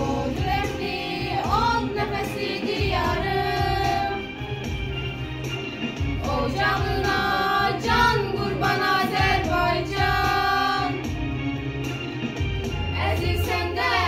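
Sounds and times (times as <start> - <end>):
girls singing together: 0.0 - 4.4, 6.2 - 11.2, 13.0 - 14.0
musical accompaniment: 0.0 - 14.0.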